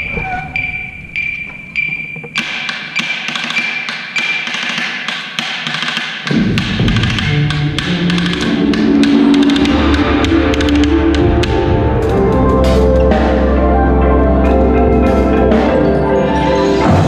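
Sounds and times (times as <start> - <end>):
metronome beeping: 0.0 - 3.9
louder lower pitched drums: 6.3 - 16.2.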